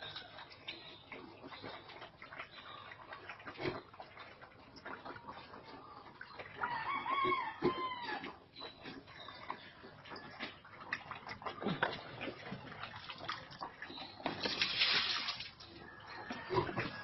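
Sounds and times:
rooster crowing: 6.6 - 8.2.

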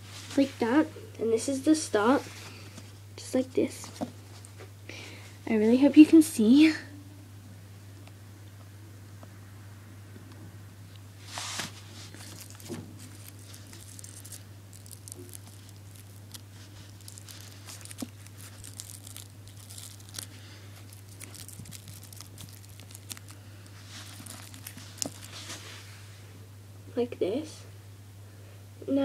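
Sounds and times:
steady low hum: 0.0 - 29.0
tissue paper crinkling: 11.2 - 26.0.

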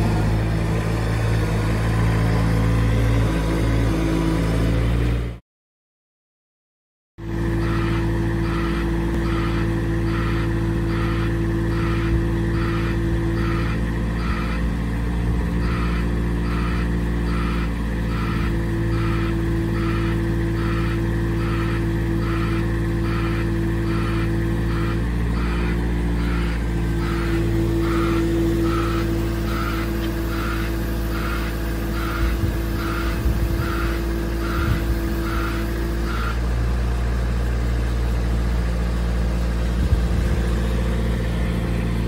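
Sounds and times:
diesel engine running: 0.0 - 5.4, 7.2 - 42.0
hydraulic whine: 7.2 - 42.0
repeating alarm beep: 7.5 - 14.8, 15.5 - 36.4.

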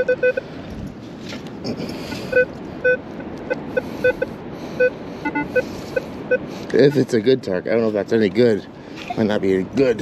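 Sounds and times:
metal detector beeps: 0.0 - 0.4, 2.3 - 7.0
wind: 0.0 - 10.0.

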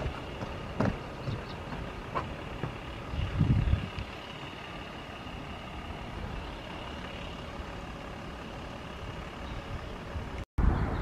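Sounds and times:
wind buffeting microphone: 0.0 - 4.2
distant vehicle noise: 0.0 - 11.0.

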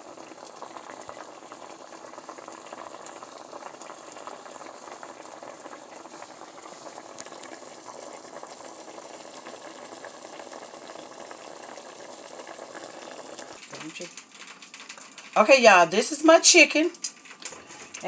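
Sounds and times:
pot of water bubbling: 0.0 - 18.0.

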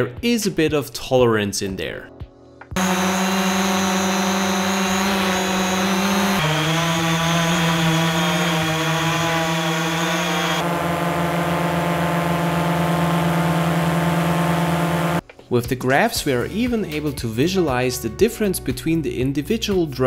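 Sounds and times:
drone propellers buzzing: 2.8 - 15.2.

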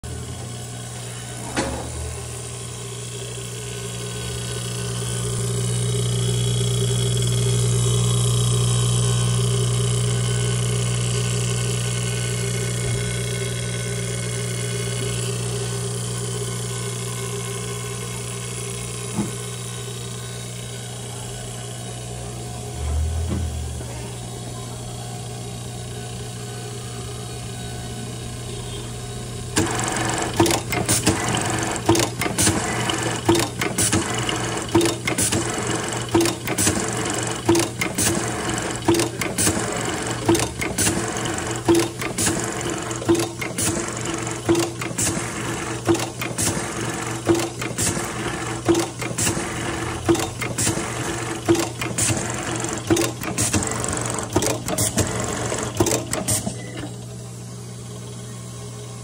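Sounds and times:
steady motor hum: 0.0 - 59.0
sewing machine stitching and clicking: 29.6 - 56.9.

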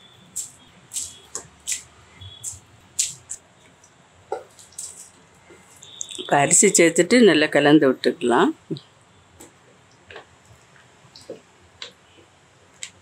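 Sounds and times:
water and oil boiling: 0.0 - 7.1.

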